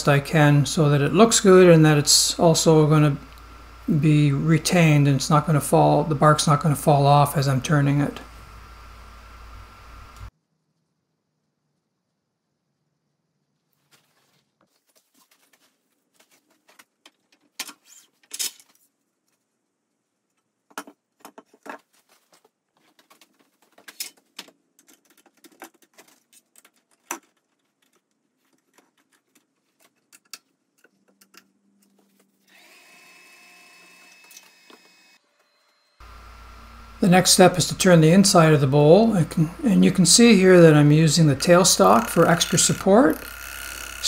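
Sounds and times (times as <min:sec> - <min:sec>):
lathe motor whine: 0:07.8 - 0:10.3, 0:32.5 - 0:39.8, 0:41.4 - 0:44.0.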